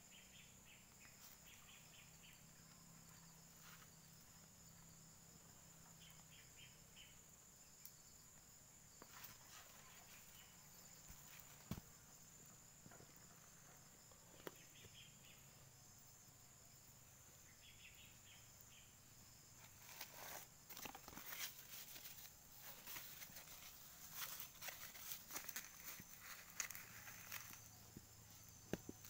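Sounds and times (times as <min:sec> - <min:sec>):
high insect drone: 0:00.0 - 0:29.0
dry leaves rustling: 0:19.8 - 0:27.7.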